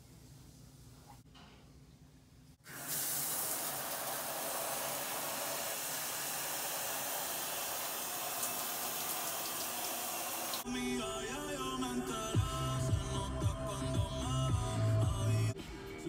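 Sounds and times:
shower water spraying: 0:02.6 - 0:10.6.

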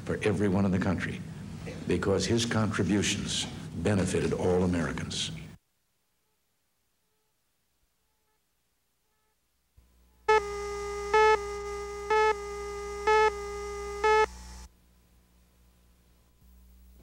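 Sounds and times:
electronic beeps: 0:10.3 - 0:14.3
steady electronic tone: 0:10.3 - 0:14.7.

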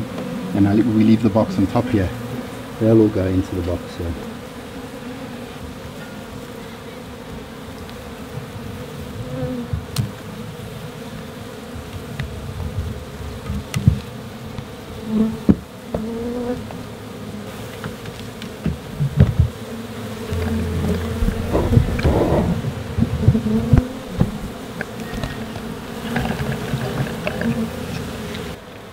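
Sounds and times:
bees buzzing: 0:00.0 - 0:28.9
sharp knocks and clicks: 0:20.3 - 0:28.5.

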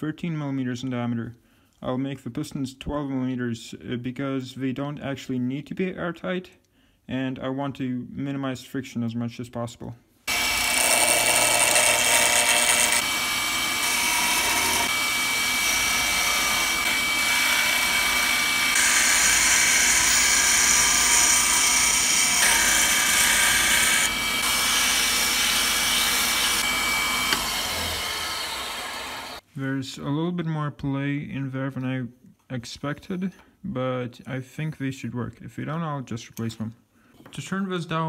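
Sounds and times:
lathe motor whine: 0:10.3 - 0:29.4
chisel scraping spinning wood: 0:10.5 - 0:13.2.

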